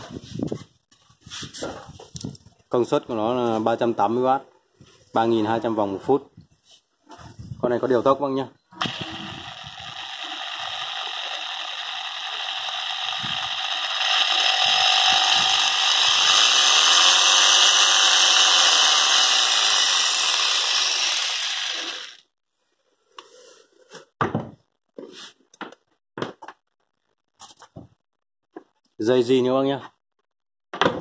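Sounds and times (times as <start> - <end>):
jigsaw motor running: 8.8 - 22.2.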